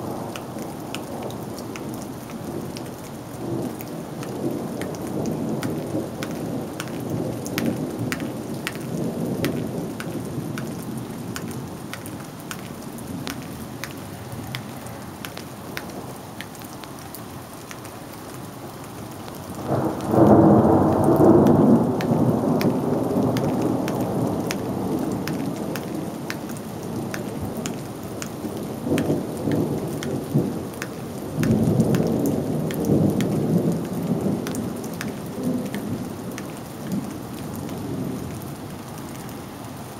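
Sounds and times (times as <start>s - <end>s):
raindrops ticking close by: 0.0s - 39.9s
steady rain: 0.0s - 39.9s
thunder rumbling: 19.6s - 26.2s.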